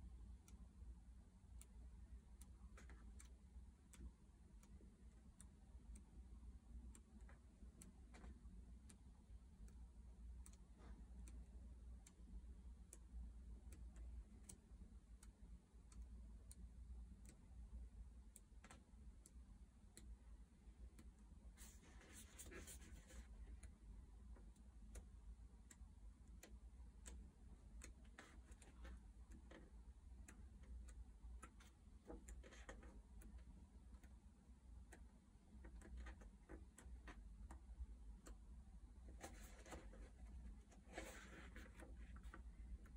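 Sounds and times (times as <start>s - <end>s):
faint regular ticking: 0.0s - 42.9s
book pages turning: 39.2s - 42.4s.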